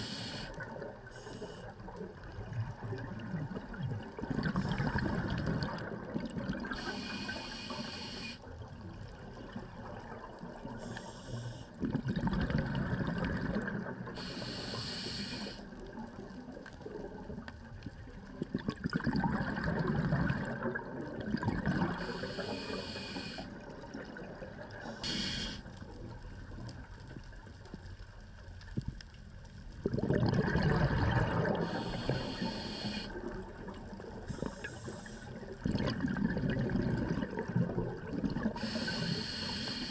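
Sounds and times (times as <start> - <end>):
hissing regulator inhalation: 0.0 - 0.6, 6.7 - 8.4, 10.8 - 11.7, 14.2 - 15.6, 21.9 - 23.5, 24.8 - 25.7, 31.6 - 33.2, 34.3 - 35.4, 38.6 - 39.9
bubbling exhalations: 18.4 - 22.2, 29.8 - 33.0, 34.2 - 39.0.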